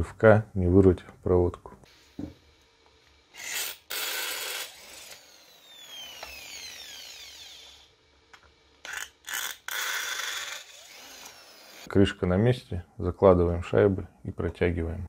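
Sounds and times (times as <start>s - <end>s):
power drill boring into metal: 3.3s - 7.9s, 8.8s - 11.9s.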